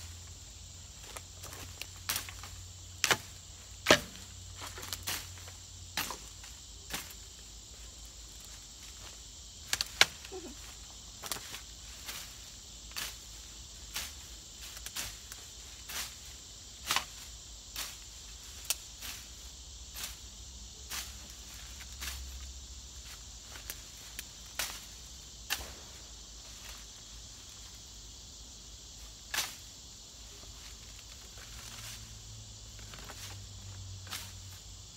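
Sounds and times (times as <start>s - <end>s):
insects chirring: 0.0s - 34.9s
blade chopping through weeds: 2.0s - 7.2s, 16.8s - 18.1s.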